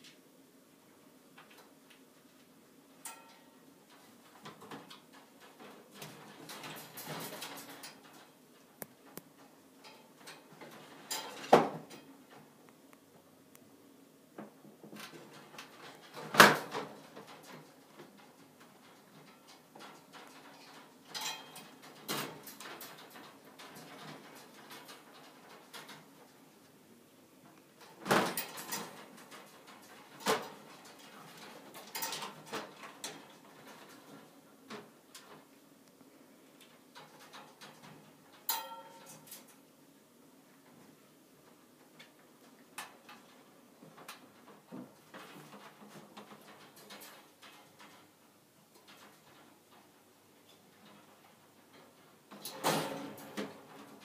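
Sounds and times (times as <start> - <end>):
wire cage clicks and rattles: 3.0 - 8.4, 9.0 - 12.5, 14.9 - 26.4, 27.8 - 35.5, 36.6 - 39.6, 42.8 - 54.0.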